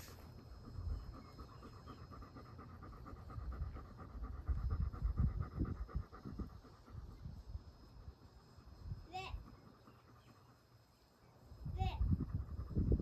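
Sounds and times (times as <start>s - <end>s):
dog panting: 0.0s - 7.5s, 9.3s - 11.0s, 12.0s - 13.0s.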